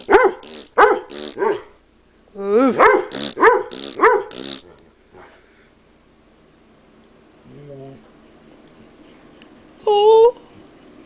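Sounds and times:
dog barking and whining: 0.0 - 1.8, 2.7 - 5.4.

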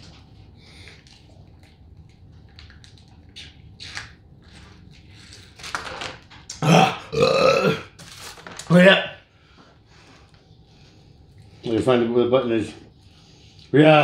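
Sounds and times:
foil pouches crinkling: 8.0 - 9.0.

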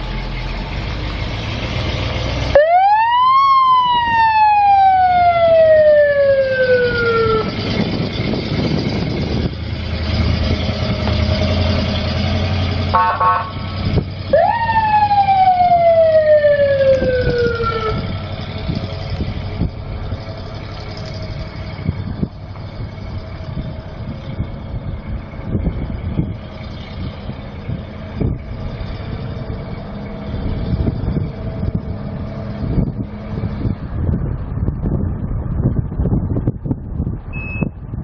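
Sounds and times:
truck engine running: 0.0 - 38.0
fire truck siren: 0.5 - 33.7
short horn tone: 12.9 - 13.6.

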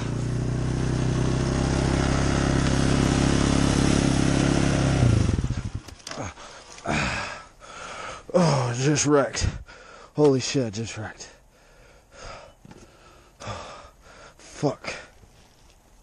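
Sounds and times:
dirt bike engine running: 0.0 - 7.4.

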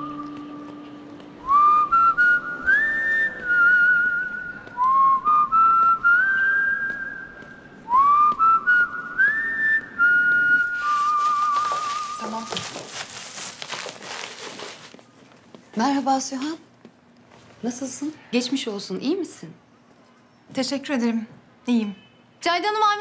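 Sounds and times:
whistled melody: 1.4 - 12.2.

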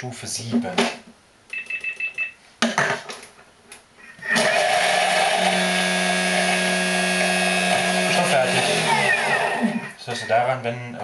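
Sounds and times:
blender motor whirring: 4.3 - 9.9
low motor hum: 4.4 - 9.8.

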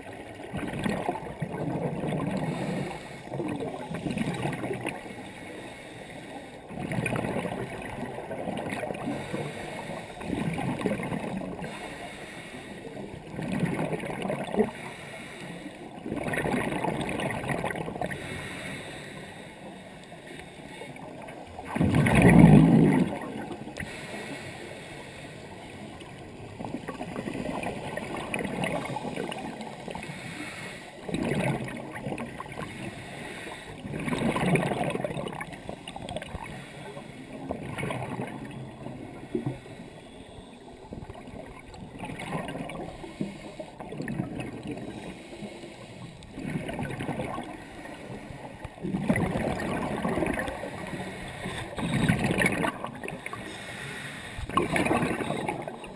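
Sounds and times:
underwater regulator bubbling: 0.0 - 5.4, 6.6 - 12.0, 12.9 - 15.0, 15.9 - 19.2, 20.0 - 24.4, 25.8 - 55.9.

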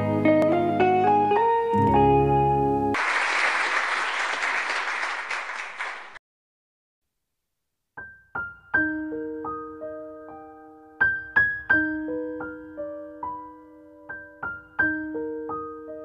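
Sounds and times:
electric piano melody: 0.0 - 3.0, 8.0 - 16.0
guitar jingle: 0.3 - 2.9
applause: 2.9 - 6.2.

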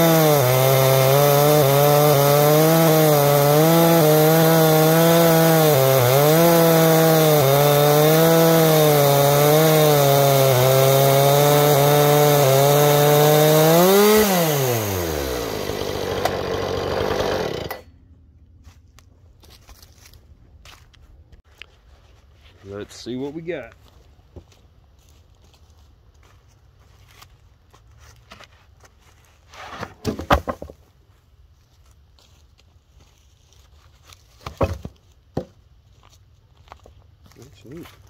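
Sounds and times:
chainsaw cutting log: 0.0 - 18.0, 34.5 - 35.5.

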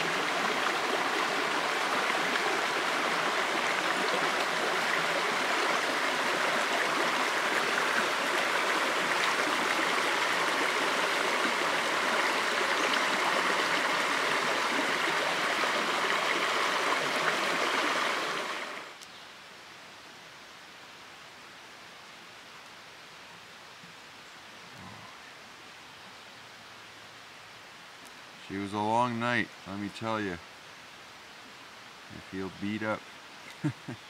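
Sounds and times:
creek splashing over boulders: 0.0 - 19.0.

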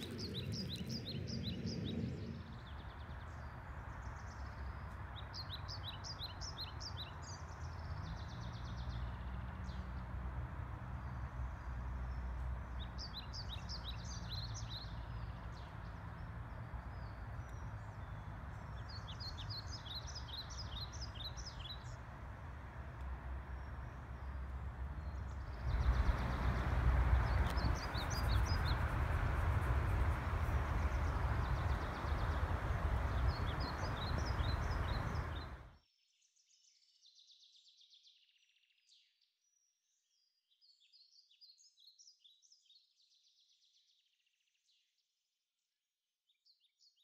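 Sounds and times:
small birds chirping: 0.0 - 35.7
wind rumble on microphone: 0.0 - 35.7.

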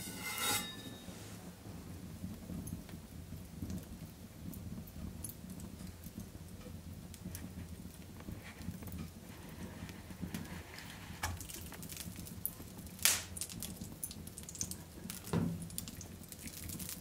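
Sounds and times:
brief scrape with ring: 0.0 - 1.2
wood fire crackling: 0.0 - 17.0.

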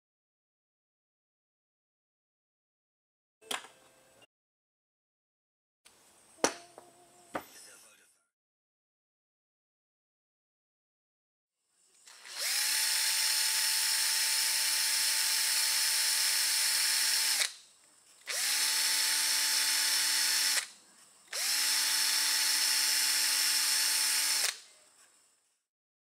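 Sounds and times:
electric drill boring plastic: 12.0 - 17.6, 18.2 - 20.7, 21.3 - 24.6.

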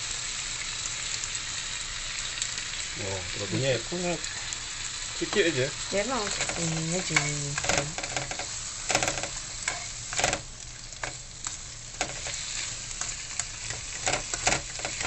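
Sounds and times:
food sizzling in a wok: 0.0 - 15.0
spatula scraping wok: 5.2 - 15.0.

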